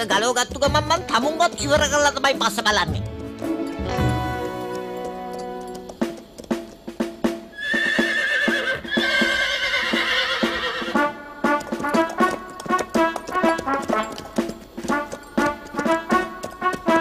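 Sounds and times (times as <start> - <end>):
trotting hooves clip-clop: 0.0 - 17.0
western cartoon music: 0.0 - 17.0
horse whinnying: 7.5 - 17.0.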